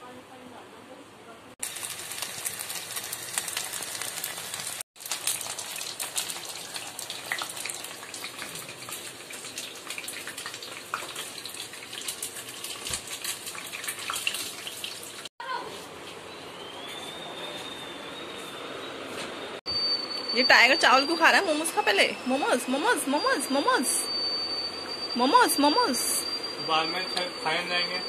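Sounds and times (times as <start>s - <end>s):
food deep-frying in hot oil: 1.6s - 15.3s.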